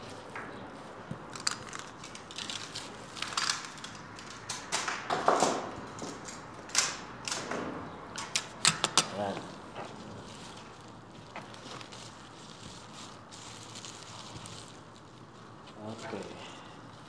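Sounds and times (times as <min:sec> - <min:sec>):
flower stems rustling: 0:00.0 - 0:04.5, 0:08.5 - 0:17.0.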